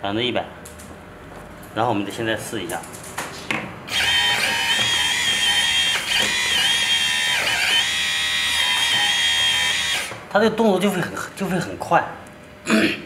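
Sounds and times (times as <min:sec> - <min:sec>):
hydraulic pump whining: 0:03.9 - 0:10.3.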